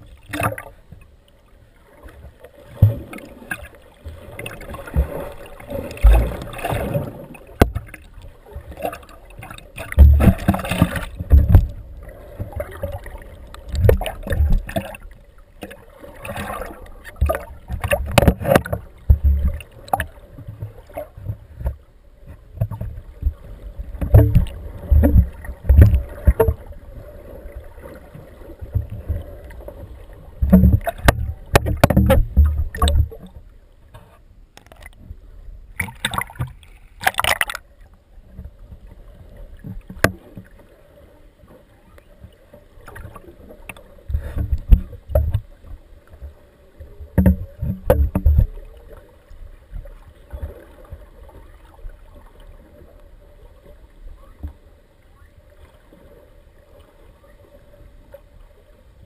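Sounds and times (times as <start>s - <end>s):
water rushing against underwater camera: 0.0s - 58.4s.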